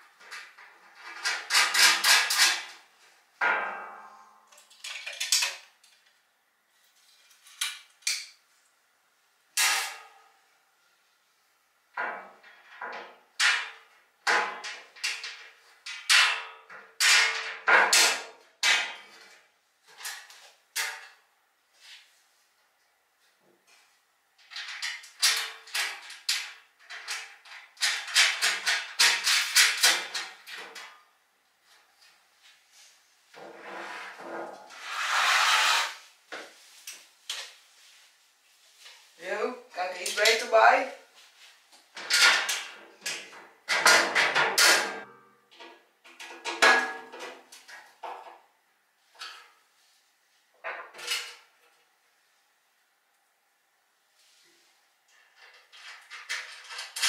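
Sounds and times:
metal parts clanking and rattling: 24.4 - 30.9, 55.4 - 57.0
metal scraping and rubbing: 33.4 - 36.2.

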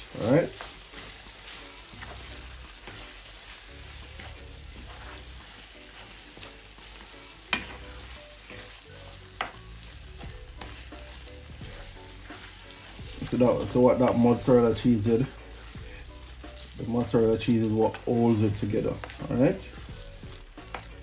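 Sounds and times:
food sizzling in a frying pan: 0.0 - 21.0
wooden spoon scraping a pan: 0.0 - 21.0.

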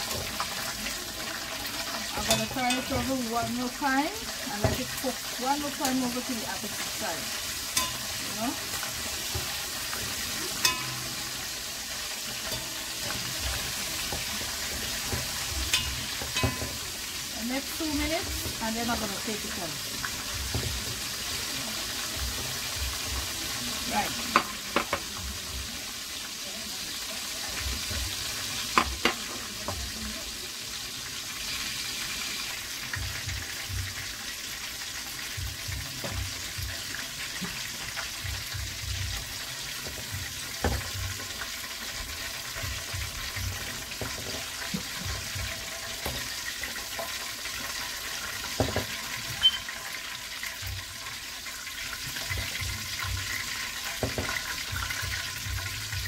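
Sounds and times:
chicken frying in oil: 0.0 - 56.0
metal spatula clinking against pot: 2.1 - 3.2, 7.7 - 11.6, 12.3 - 17.1, 49.4 - 49.8.

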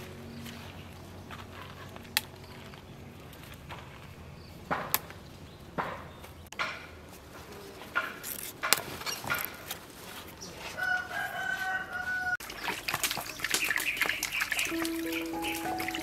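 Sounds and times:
rooster crowing: 10.8 - 12.4
water splashing in a metal basin: 12.4 - 16.0.

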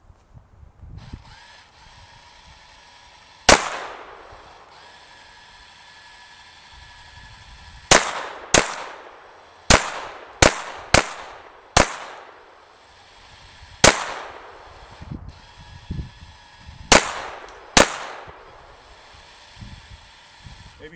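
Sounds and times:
pistol shots with echo: 3.5 - 4.2, 7.9 - 12.5, 13.8 - 14.6, 16.9 - 18.3.

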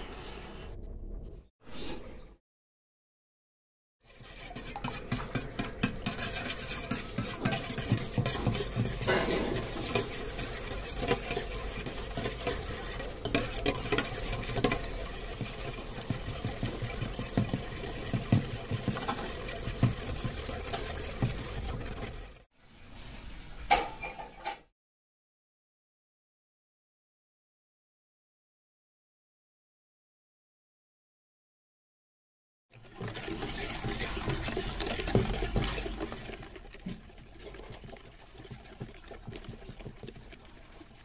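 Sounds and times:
whisk clattering in metal bowl: 4.1 - 22.4, 32.8 - 41.0.

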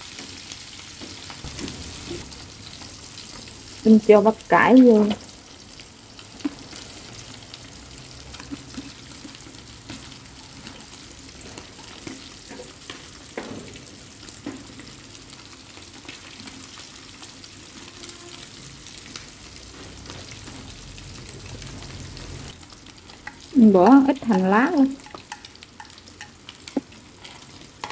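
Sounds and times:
stir-fry sizzling in a frying pan: 0.0 - 27.9
chopsticks tapping and scraping pan: 8.3 - 10.8, 11.4 - 13.7, 23.0 - 27.9.

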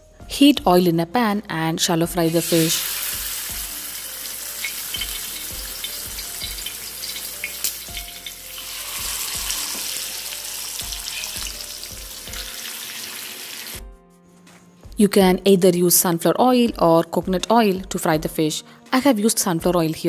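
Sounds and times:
fish sizzling in hot oil: 2.2 - 13.8.

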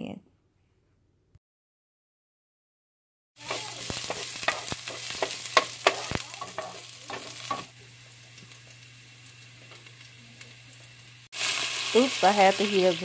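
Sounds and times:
vegetables sizzling in oil: 3.4 - 13.0
water boiling in saucepan: 5.5 - 13.0.

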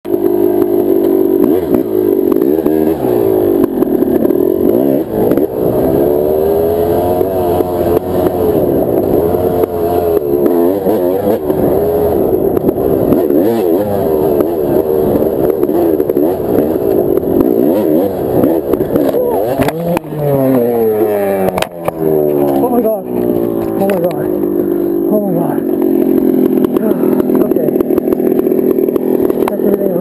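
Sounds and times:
dirt bike engine revving: 0.1 - 30.0.

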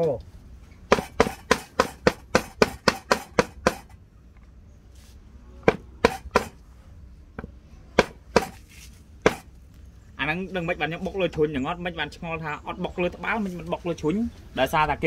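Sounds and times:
stone pestle pounding on wood: 0.9 - 4.0, 5.6 - 6.6, 7.4 - 8.6, 9.2 - 9.5.

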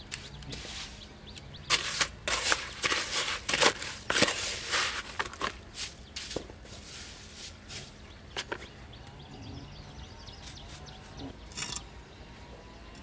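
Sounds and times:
trowel scraping mortar in bucket: 0.1 - 1.0, 1.6 - 8.6.

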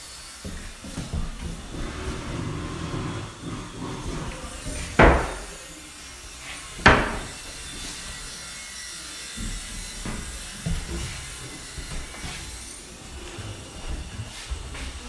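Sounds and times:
wardrobe doors knocking: 5.0 - 5.5, 6.8 - 7.4.

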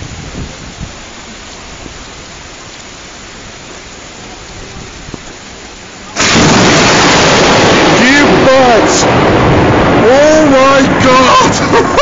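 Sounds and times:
heavy rain falling: 0.0 - 12.0
loud overloading noise: 4.2 - 12.0.

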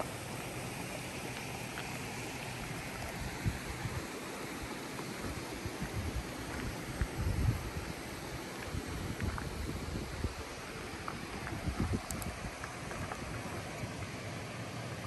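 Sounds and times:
steady outdoor hiss: 0.0 - 15.0
wind buffeting microphone: 5.2 - 13.7.

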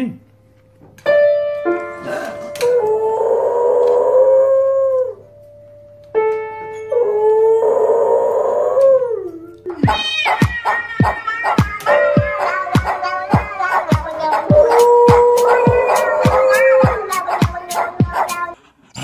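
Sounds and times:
piano notes: 0.0 - 2.9, 4.7 - 7.8, 8.9 - 18.1
dog howling: 2.6 - 5.2, 6.9 - 18.6
music with steady beat: 9.8 - 18.5.

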